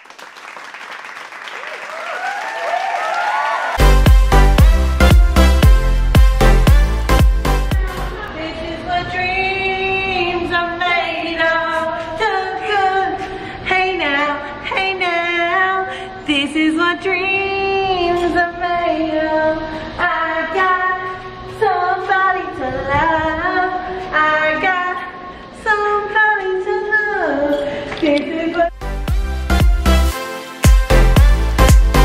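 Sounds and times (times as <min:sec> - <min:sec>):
dance music beat: 0:03.8 - 0:08.2, 0:28.8 - 0:32.0
women singing: 0:07.7 - 0:28.7.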